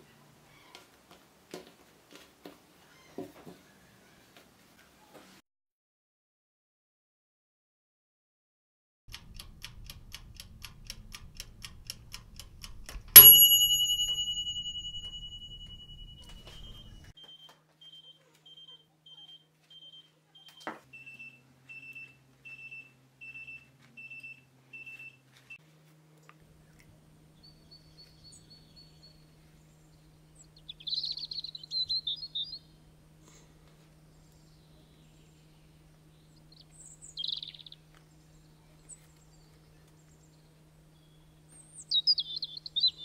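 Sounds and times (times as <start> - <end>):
kitchen timer ticking: 9.1 - 16.9
timer click: 9.1 - 17.1
birds chirping: 9.2 - 25.6, 26.2 - 43.0
timer bell ding: 13.2 - 17.1
short electronic beeps: 14.2 - 25.1.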